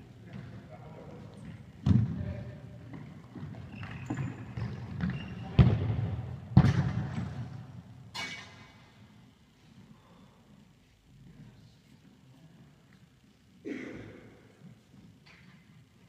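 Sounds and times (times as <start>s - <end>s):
ball thudding in sports hall: 1.8s - 7.7s.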